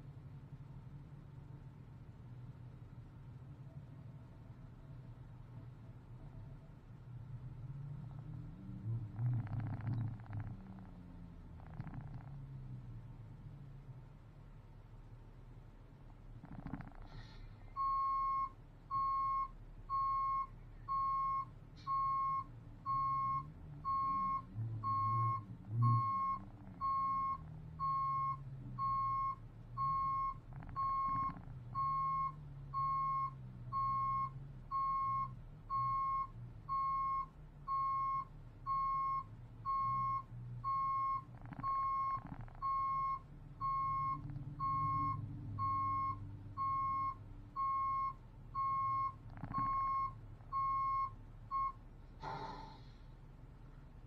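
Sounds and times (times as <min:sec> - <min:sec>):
diesel engine running: 0:00.0 - 0:54.0
truck backup alarm beeping: 0:17.7 - 0:51.8.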